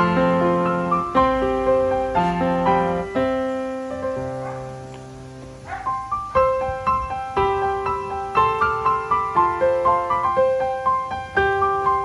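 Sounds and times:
piano music: 0.0s - 12.0s.

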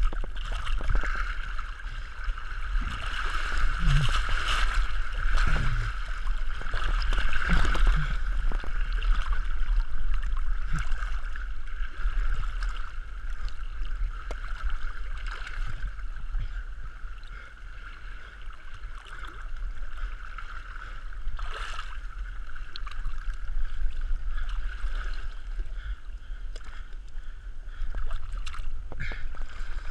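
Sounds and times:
low rumble: 0.0s - 17.0s
stream water rushing and gurgling: 0.0s - 27.2s, 27.8s - 29.9s.

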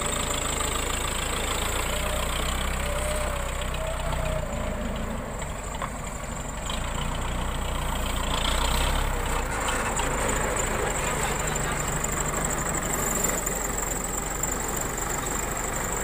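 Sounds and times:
backhoe diesel engine running: 0.0s - 16.0s.

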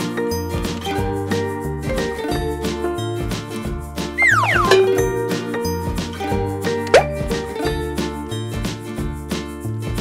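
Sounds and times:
background music with steady beat: 0.8s - 10.0s.

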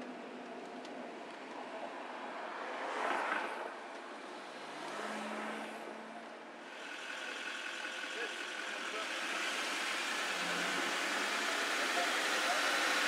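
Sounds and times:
road and traffic noise: 0.0s - 13.0s
faint low engine hum: 5.9s - 13.0s.

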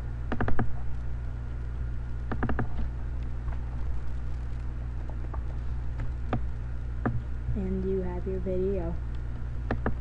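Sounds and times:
steady low hum: 0.0s - 10.0s
computer mouse clicking: 0.3s - 0.8s, 2.3s - 2.9s, 9.7s - 10.0s.

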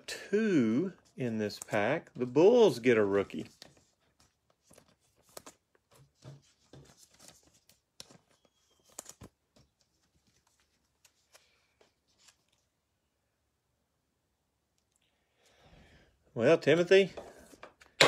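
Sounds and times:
trading cards rustling and tapping: 1.0s - 12.6s.

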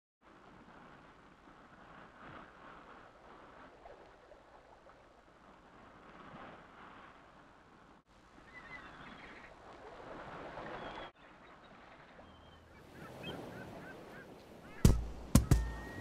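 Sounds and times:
surf: 0.2s - 16.0s
faint bird calls: 8.4s - 9.6s, 10.6s - 16.0s.

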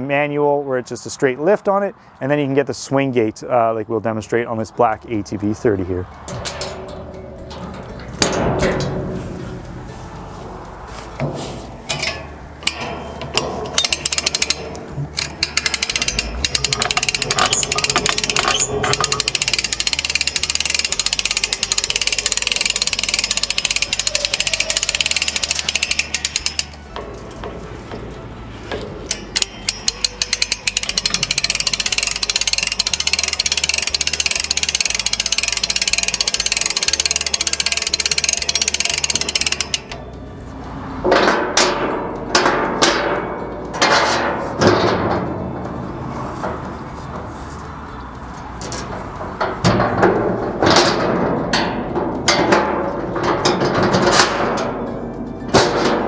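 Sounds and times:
winch ratchet clicking: 11.9s - 27.1s, 28.7s - 40.2s.

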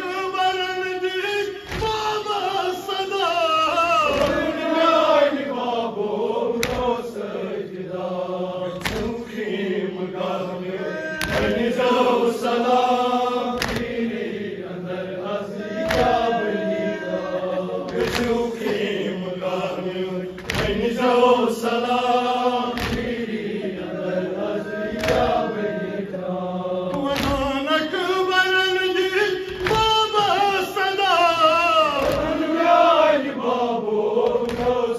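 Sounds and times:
man chanting a lament: 0.0s - 4.9s, 10.5s - 13.4s, 27.0s - 32.6s
group of men chanting: 0.6s - 34.9s.

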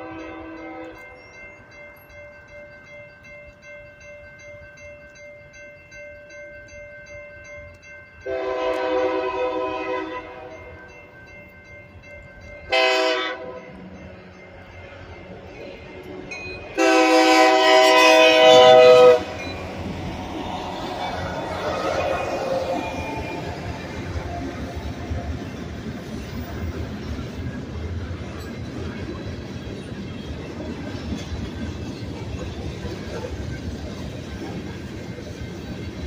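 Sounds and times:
locomotive horn blasts: 0.0s - 1.1s, 8.2s - 10.7s, 12.7s - 13.7s, 16.7s - 19.6s
crossing bells ringing: 0.0s - 36.0s
train wheel noise: 0.0s - 36.0s
locomotive engine rumble: 7.7s - 36.0s.

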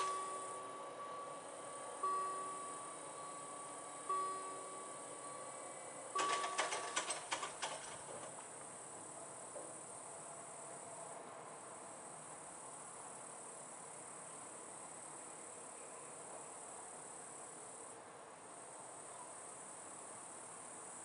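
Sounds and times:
crickets trilling: 0.0s - 21.0s
sharp clicks: 6.2s - 8.4s.

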